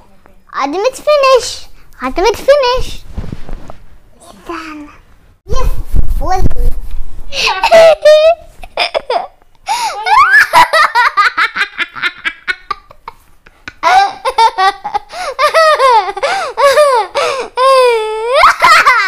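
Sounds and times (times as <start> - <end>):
young child laughing: 7.3 - 19.0.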